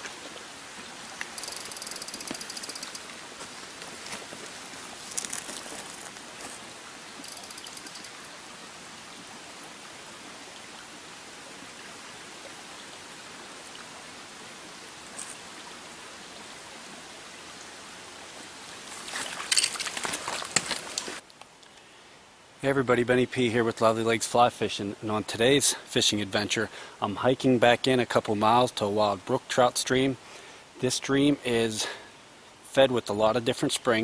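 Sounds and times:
brook rushing over rocks: 0.0s - 8.2s, 18.8s - 21.2s
fishing reel ratchet clicking: 1.4s - 3.0s, 7.2s - 8.2s.

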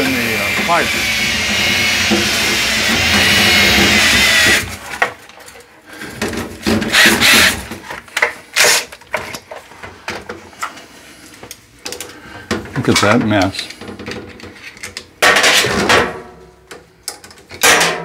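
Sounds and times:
cordless drill whining: 0.0s - 4.8s, 6.9s - 7.6s.

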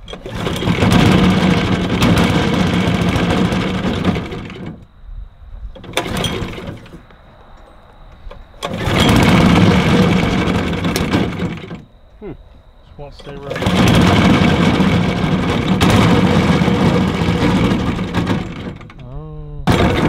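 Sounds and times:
engine pull-start: 0.0s - 4.9s, 5.8s - 7.0s, 8.6s - 11.9s, 13.2s - 19.1s, 19.7s - 20.0s
engine sputter: 0.0s - 4.9s, 5.8s - 7.0s, 8.6s - 11.9s, 13.2s - 20.0s
small engine running: 0.2s - 4.8s, 8.6s - 11.8s, 13.3s - 18.8s.

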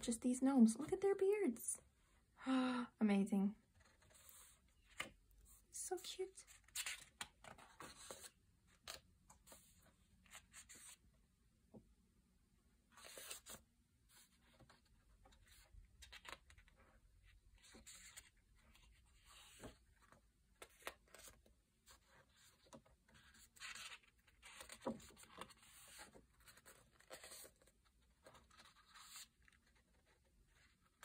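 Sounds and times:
paper pages turning: 6.5s - 11.0s, 12.9s - 16.8s, 17.6s - 31.0s.

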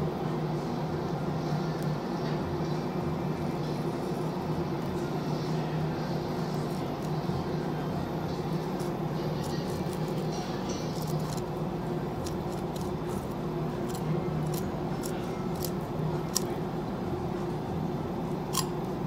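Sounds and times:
low machine hum: 0.0s - 19.0s
knife ticking along fish bones: 10.8s - 16.5s.

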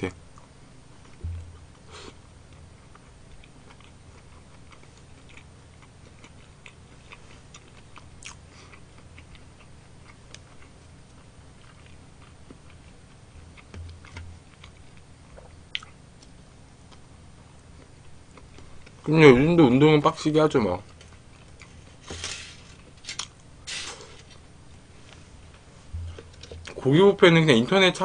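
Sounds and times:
chewing crunchy food: 2.5s - 17.1s, 20.8s - 22.1s.

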